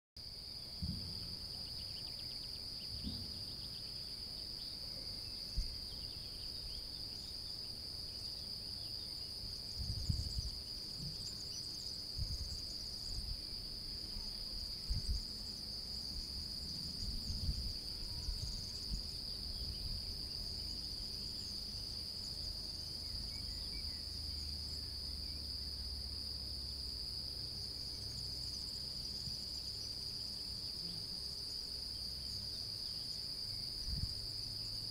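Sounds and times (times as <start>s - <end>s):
crickets trilling: 0.2s - 34.9s
low rumbles and thumps: 0.8s - 1.4s, 2.9s - 3.6s.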